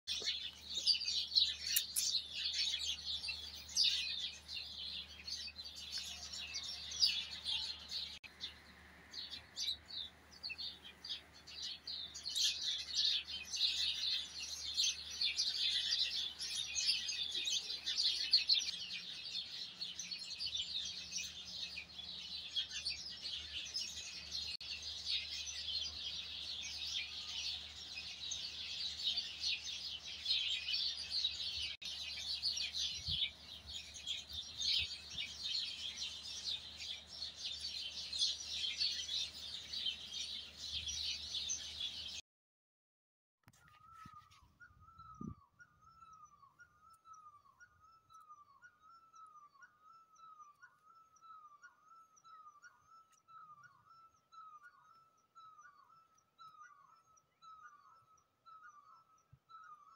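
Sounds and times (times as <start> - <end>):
small birds chirping and twittering: 0.0 - 42.2, 43.4 - 59.9.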